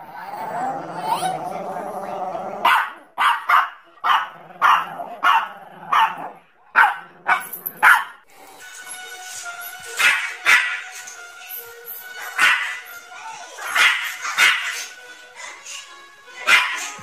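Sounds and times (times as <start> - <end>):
small dogs barking: 2.6 - 8.2, 10.0 - 11.0, 12.2 - 12.9, 13.6 - 15.0, 16.4 - 17.0.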